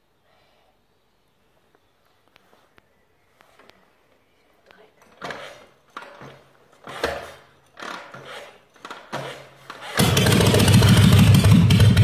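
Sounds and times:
motorcycle kick-start turning over: 0:05.2 - 0:12.0
motorcycle engine running: 0:10.0 - 0:12.0.

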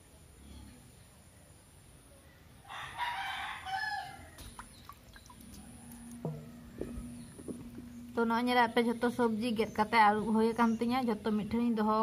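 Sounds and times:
rooster crowing: 0:02.6 - 0:04.4.

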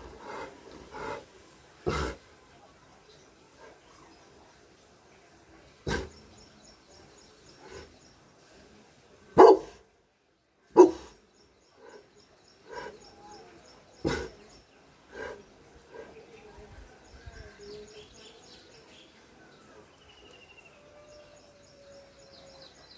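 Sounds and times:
dog barking: 0:09.4 - 0:09.8, 0:10.7 - 0:11.2, 0:14.0 - 0:14.3.

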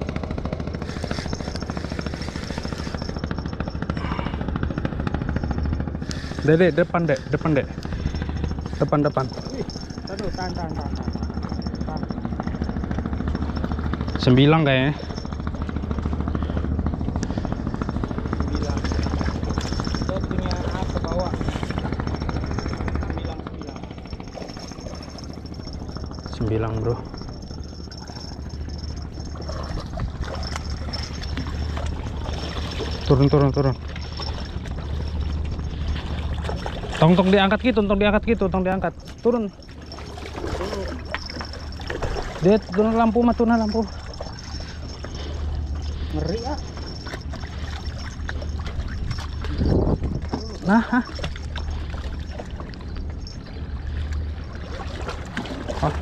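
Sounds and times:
low rumble: 0:00.0 - 0:55.8
low engine hum: 0:00.0 - 0:56.0
seawater washing against rocks: 0:00.6 - 0:04.2, 0:17.3 - 0:56.0.

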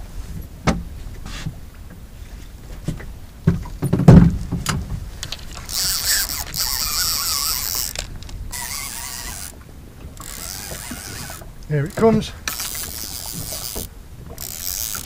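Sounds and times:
fishing reel whirring and clicking: 0:05.2 - 0:15.0.

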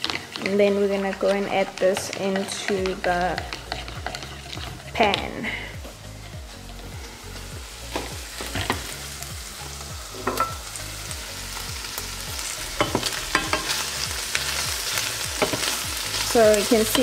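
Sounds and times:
spatula scraping a pan: 0:00.0 - 0:09.0
food sizzling in a pan: 0:00.0 - 0:17.0.

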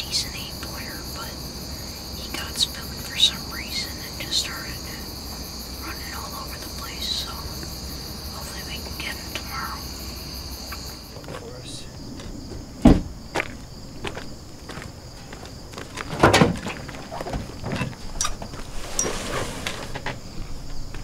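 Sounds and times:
crickets trilling: 0:00.0 - 0:21.0
sharp knocks: 0:12.8 - 0:13.2.

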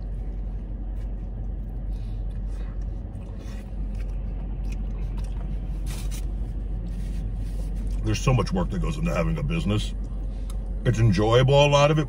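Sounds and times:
faint chewing: 0:00.0 - 0:08.3
low rumble inside car: 0:00.0 - 0:12.0.

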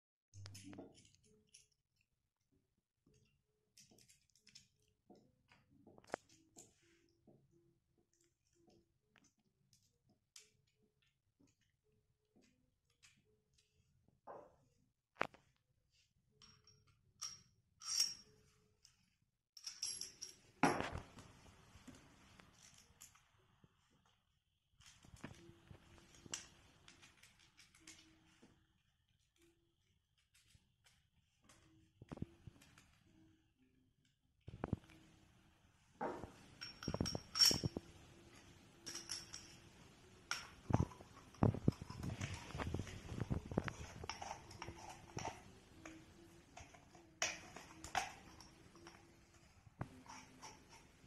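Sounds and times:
metal parts clinking and rattling: 0:16.4 - 0:18.5, 0:19.6 - 0:21.2, 0:24.8 - 0:28.3, 0:36.2 - 0:49.2.

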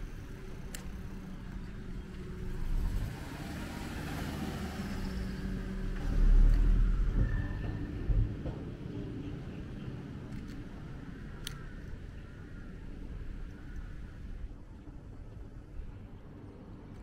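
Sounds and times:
vehicle engine passing: 0:02.3 - 0:07.7.

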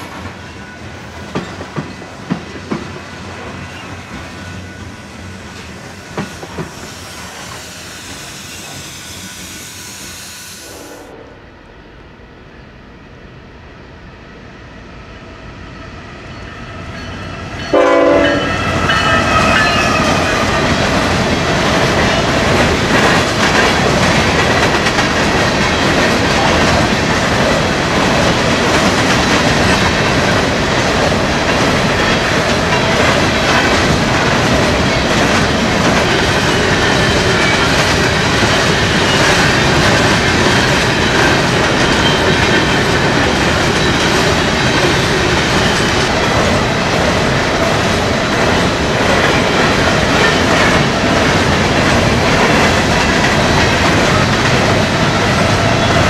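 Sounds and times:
train wheels clicking over rail joints: 0:18.8 - 0:56.0.

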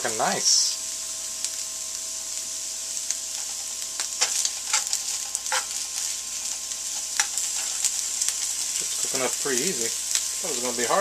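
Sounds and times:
meat sizzling in a skillet: 0:00.0 - 0:11.0
metal utensil scraping a pan: 0:03.3 - 0:09.2.

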